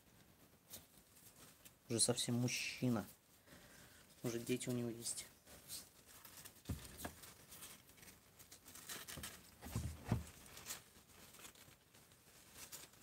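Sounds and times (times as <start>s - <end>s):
faint rustling: 0.0s - 13.0s
soft knocks on cardboard box: 9.6s - 10.3s.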